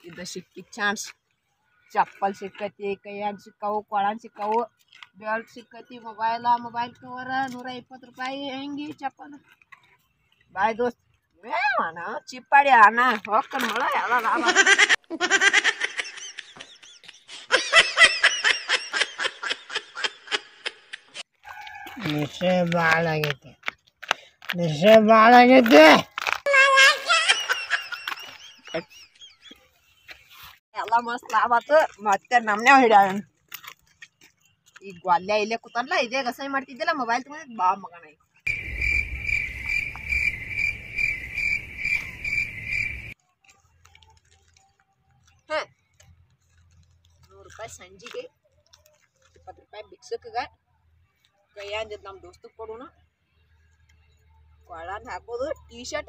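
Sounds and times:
person laughing: 0:26.9 - 0:28.9
low rumble: 0:38.5 - 0:43.1
cricket chirping: 0:38.5 - 0:43.2.

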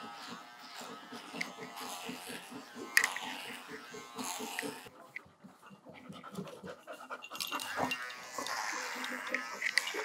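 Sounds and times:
electric hair trimmer buzzing: 0:00.0 - 0:04.9, 0:07.6 - 0:10.0
dog panting: 0:00.8 - 0:10.0.

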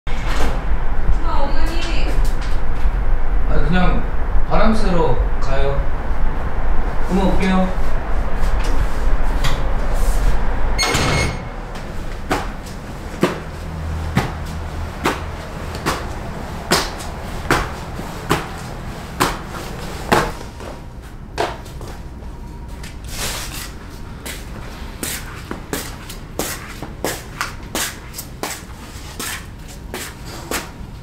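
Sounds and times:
low hum: 0:00.1 - 0:27.0
door clatter with ringing tone: 0:10.8 - 0:11.6
footsteps on hard floor: 0:11.7 - 0:30.7.

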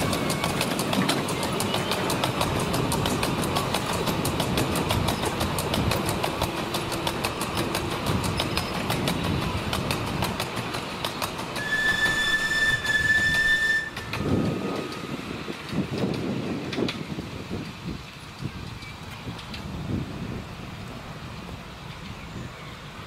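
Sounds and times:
wheels clicking over rail joints: 0:00.0 - 0:20.4, 0:21.2 - 0:23.0
steam locomotive whistle: 0:11.6 - 0:14.4.

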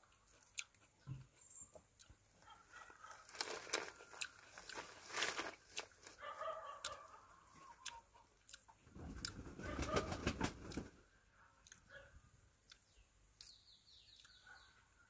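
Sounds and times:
mandarin peel tearing and crackling: 0:03.2 - 0:06.2.

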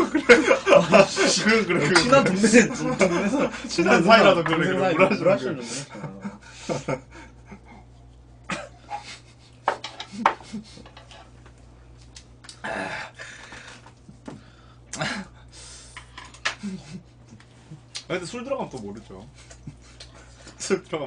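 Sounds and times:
low steady hum: 0:00.0 - 0:21.0
person coughing and breathing: 0:08.5 - 0:09.3.

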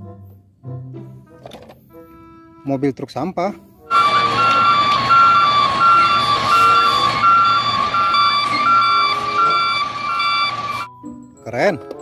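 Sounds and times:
steady high tone: 0:03.9 - 0:10.9
truck reversing alarms beeping: 0:03.9 - 0:11.0.

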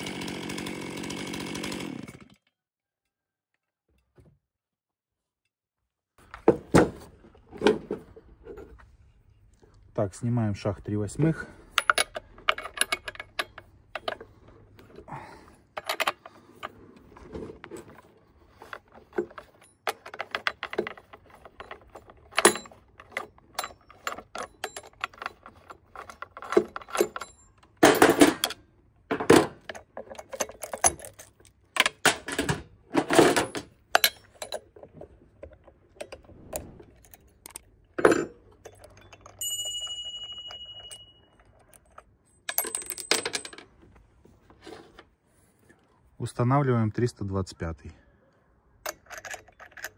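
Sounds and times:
metal parts clicking and clinking: 0:11.2 - 0:43.8, 0:48.8 - 0:49.9
metal parts knocking on bench: 0:11.7 - 0:14.4, 0:18.6 - 0:36.3
steady ringing tone: 0:38.9 - 0:41.5.

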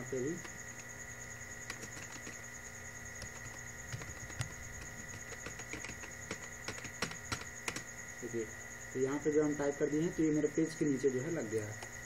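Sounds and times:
faint high whine: 0:00.0 - 0:12.0
computer keyboard keys clicking: 0:01.6 - 0:02.4, 0:03.2 - 0:07.9.

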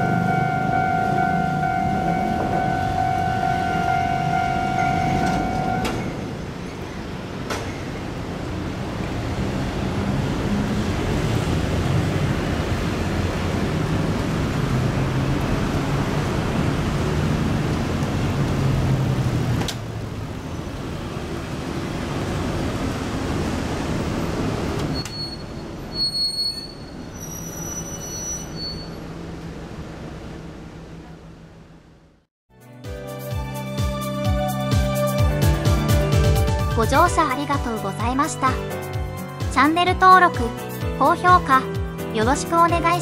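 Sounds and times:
level crossing bell ringing: 0:00.0 - 0:06.0
cars passing: 0:00.0 - 0:24.9.

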